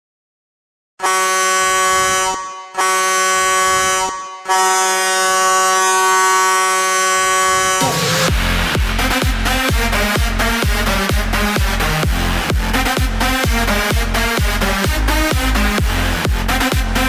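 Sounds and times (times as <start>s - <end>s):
goal horn blasts: 1.0s - 8.3s.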